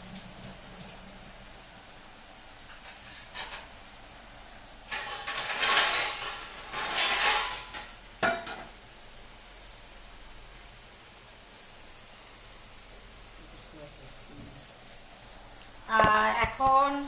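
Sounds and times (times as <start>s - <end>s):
metal dishes clattering: 4.9s - 8.8s.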